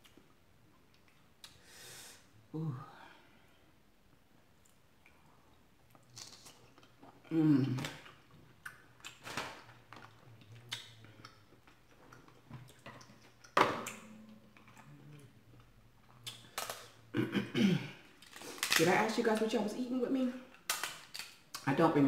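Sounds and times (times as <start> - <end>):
wet chewing: 5.8 - 9.3, 10.0 - 16.9
person humming mmm: 7.2 - 8.1
crab shell crackling: 18.2 - 19.5, 20.5 - 21.6.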